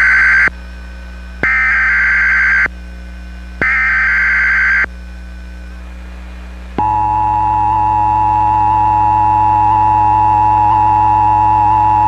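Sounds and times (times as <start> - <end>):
low mains hum: 0.0 - 12.0
two-tone attention signal: 6.8 - 12.0.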